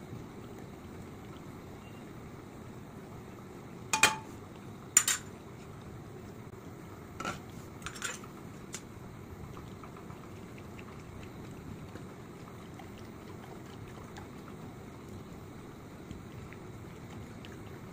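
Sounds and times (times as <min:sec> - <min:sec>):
spoon clinking against steel bowl: 0:04.0 - 0:04.3.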